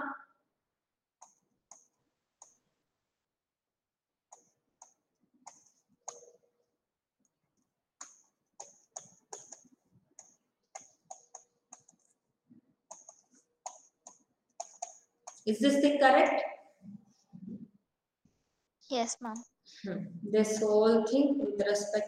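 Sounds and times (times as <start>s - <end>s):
stylus tapping on touchscreen: 4.3s - 6.4s, 8.0s - 12.2s, 12.9s - 15.4s.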